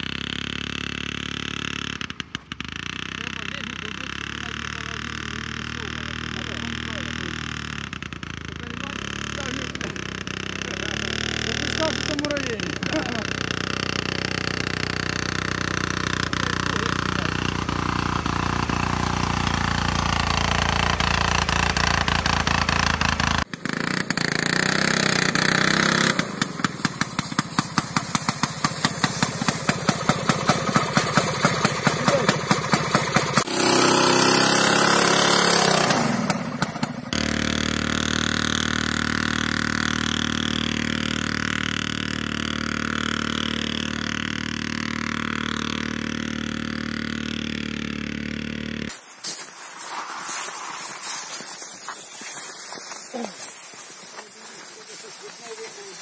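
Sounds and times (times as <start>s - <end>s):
two-stroke engine running: 0.0s - 49.0s, 50.9s - 56.0s
hissing rush of air: 49.0s - 54.2s.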